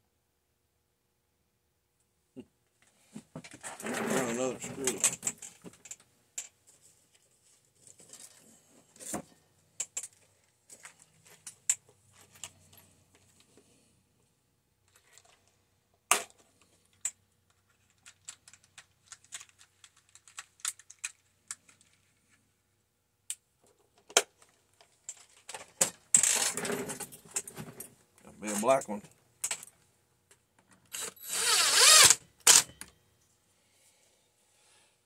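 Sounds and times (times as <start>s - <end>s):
screws clinking and rattling: 24.8s - 28.8s, 30.7s - 32.9s.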